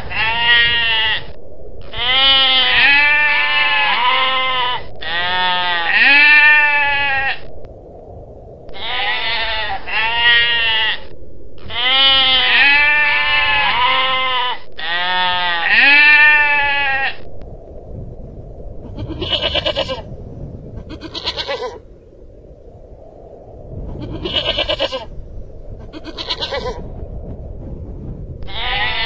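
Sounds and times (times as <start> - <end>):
goral calling: 18.9 - 20.2, 20.8 - 22.2, 24.0 - 26.8.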